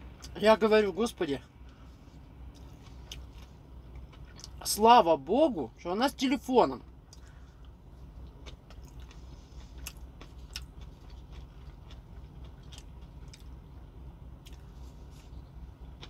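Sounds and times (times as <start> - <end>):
steady low hum: 0.0 - 16.0
person chewing with mouth open: 2.4 - 4.6, 7.0 - 16.0.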